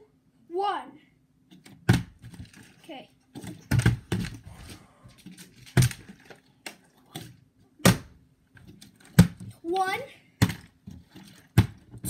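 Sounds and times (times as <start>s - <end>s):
plastic bottles landing with thuds: 1.6s - 2.7s, 3.3s - 4.5s, 5.2s - 6.8s, 7.8s - 8.2s, 8.9s - 9.6s, 10.4s - 12.0s.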